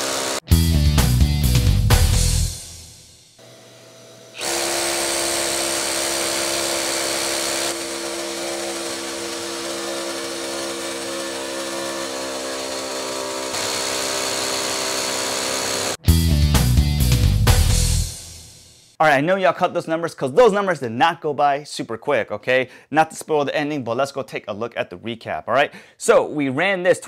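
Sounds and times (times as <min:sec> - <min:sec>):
rotary hammer drilling into concrete: 0:00.0 - 0:00.4, 0:04.4 - 0:16.0.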